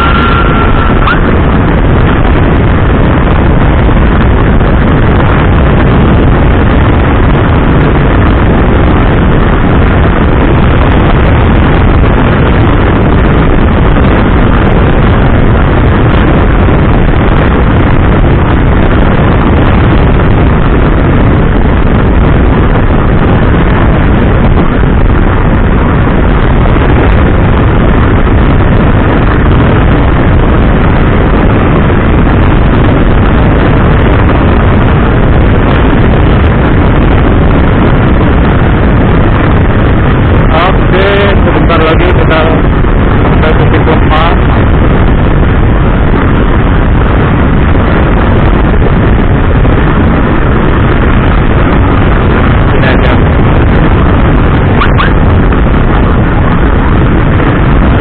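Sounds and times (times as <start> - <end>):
wind rushing over microphone: 0.0 - 58.0.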